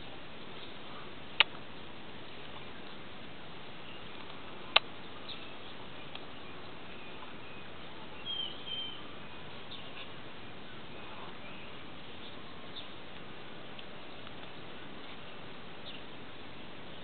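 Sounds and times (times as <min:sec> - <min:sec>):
steady outdoor hiss: 0:00.0 - 0:17.0
bird chirping: 0:03.6 - 0:13.0, 0:15.8 - 0:16.2.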